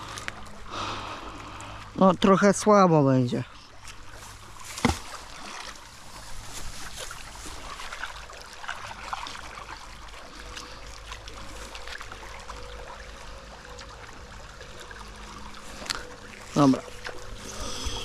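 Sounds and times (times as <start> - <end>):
stream flowing and rippling: 0.0 - 18.0
rope rustling over grass: 3.8 - 9.6.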